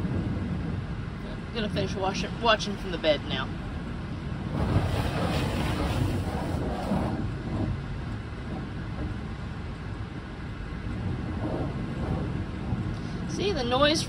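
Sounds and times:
water spraying over truck: 0:04.4 - 0:08.4.

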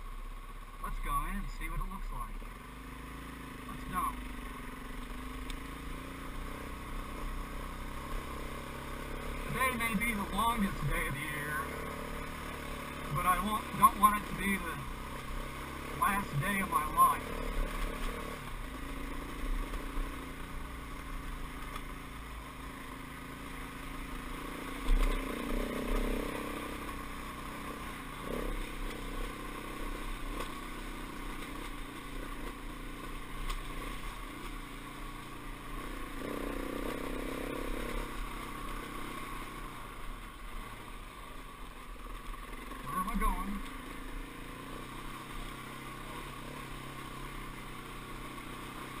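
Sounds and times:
dirt bike engine revving: 0:02.4 - 0:41.0.

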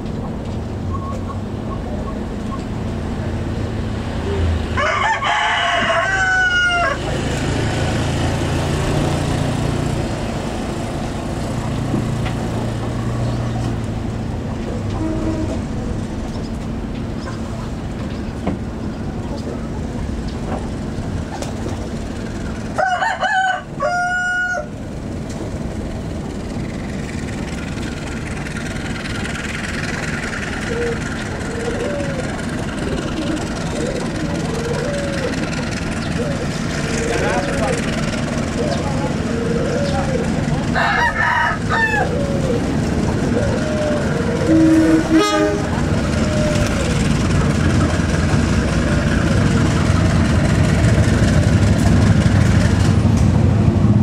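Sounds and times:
rooster crowing: 0:04.8 - 0:07.2, 0:22.7 - 0:24.8, 0:40.7 - 0:42.6.

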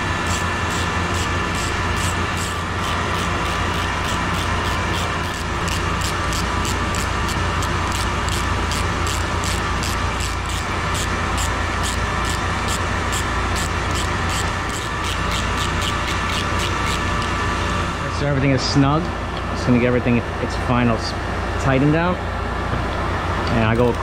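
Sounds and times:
pumps droning: 0:00.0 - 0:18.1
ratchet wrench clicking: 0:00.2 - 0:17.3.

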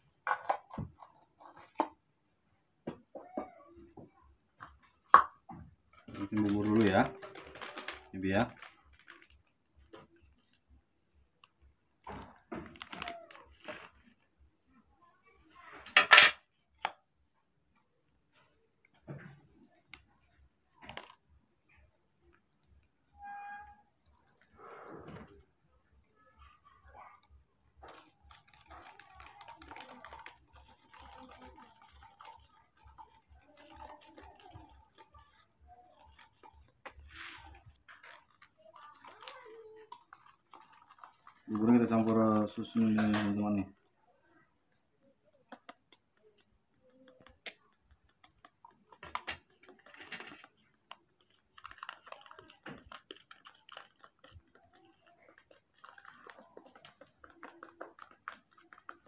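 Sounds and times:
faint rapid clicks: 0:26.4 - 0:44.0, 0:45.0 - 0:59.0.

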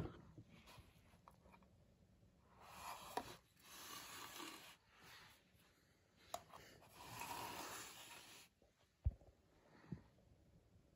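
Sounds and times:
toy rubbing and scraping on carpet: 0:02.6 - 0:05.4, 0:06.6 - 0:08.6.

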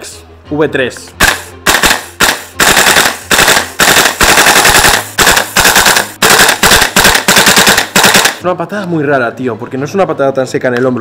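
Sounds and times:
airsoft rifle shots: 0:01.2 - 0:08.4.

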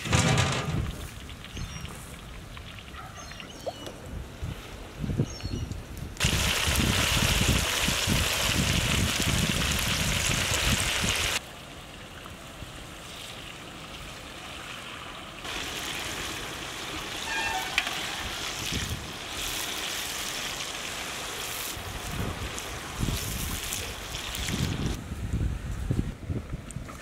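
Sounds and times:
chicken sizzling in hot oil: 0:06.2 - 0:11.4, 0:15.5 - 0:25.0.

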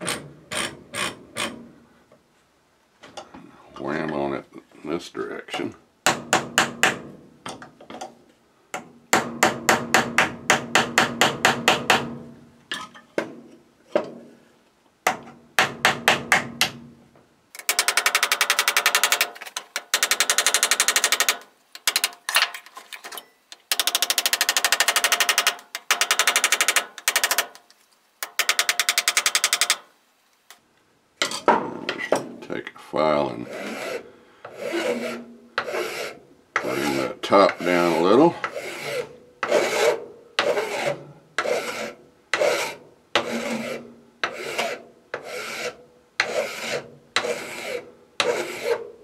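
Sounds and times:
hammer tapping on metal: 0:08.8 - 0:12.2.

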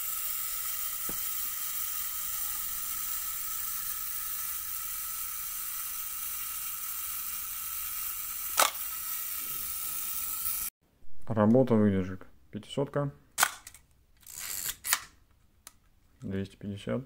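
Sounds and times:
self-timer buzzing whir: 0:00.0 - 0:10.7
camera shutter click: 0:08.5 - 0:09.0.

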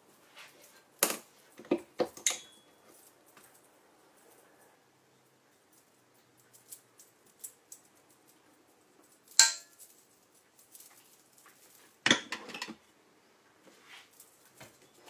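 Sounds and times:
metallic knock on steel bowl: 0:09.4 - 0:09.7
clatter and scraping against bowl: 0:12.0 - 0:12.8.

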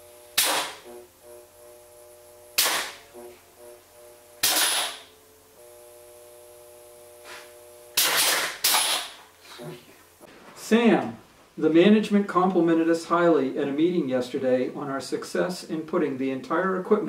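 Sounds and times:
steady hum: 0:00.0 - 0:17.0
short air hiss: 0:00.4 - 0:00.9, 0:02.6 - 0:03.1, 0:04.4 - 0:05.1, 0:07.1 - 0:10.0.

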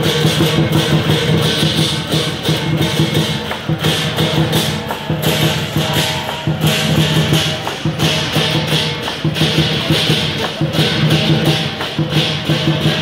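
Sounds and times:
clashing cymbals: 0:00.0 - 0:13.0
gong: 0:00.0 - 0:13.0
large drum beaten rapidly: 0:00.0 - 0:13.0.

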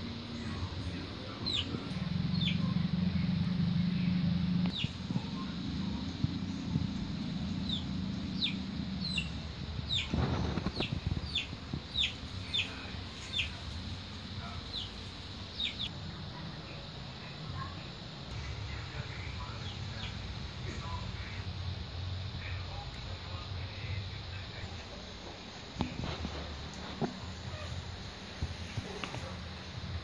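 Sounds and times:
low steady hum: 0:00.0 - 0:30.0
small bird chirping: 0:00.3 - 0:03.3, 0:04.7 - 0:15.9.

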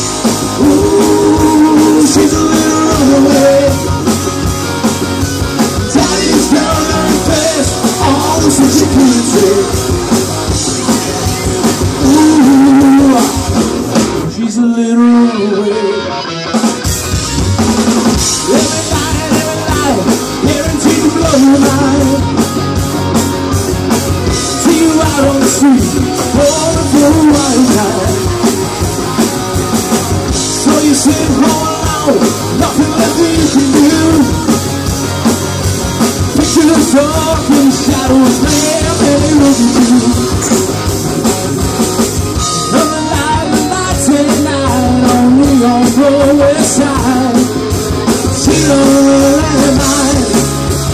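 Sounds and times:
man singing: 0:00.0 - 0:04.4, 0:05.6 - 0:13.6, 0:14.2 - 0:16.4, 0:18.2 - 0:22.5, 0:24.3 - 0:28.6, 0:30.2 - 0:34.7, 0:36.2 - 0:40.8, 0:42.4 - 0:50.8
drum kit with cymbals: 0:00.0 - 0:14.4, 0:16.5 - 0:50.9
bass guitar: 0:00.0 - 0:50.9
electric guitars: 0:00.0 - 0:50.9.

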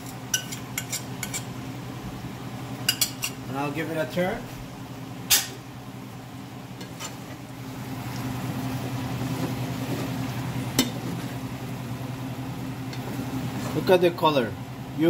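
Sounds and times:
steady low hum: 0:00.0 - 0:15.0
metal spoon clinking on pan: 0:02.9 - 0:03.4.

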